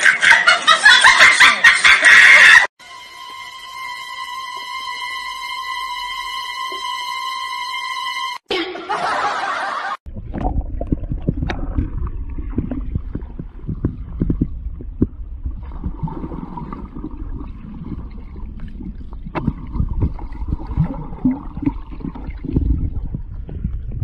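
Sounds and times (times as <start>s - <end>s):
bubble pops and knocks: 10.1s - 16.2s, 19.2s - 24.0s
underwater rumble and gurgling: 10.1s - 24.0s.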